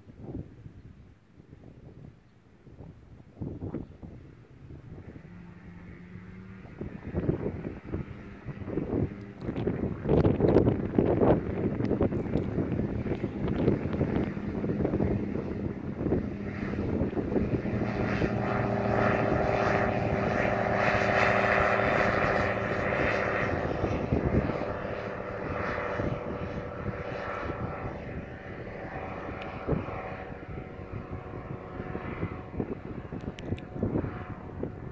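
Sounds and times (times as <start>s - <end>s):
light airplane engine and propeller: 0.0s - 34.9s.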